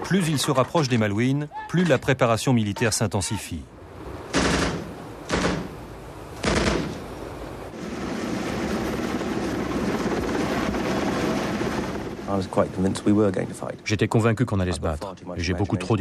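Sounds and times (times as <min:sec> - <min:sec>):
steady rumbling noise: 0:03.7 - 0:16.0
machine-gun fire bursts: 0:04.3 - 0:05.8, 0:06.4 - 0:07.0.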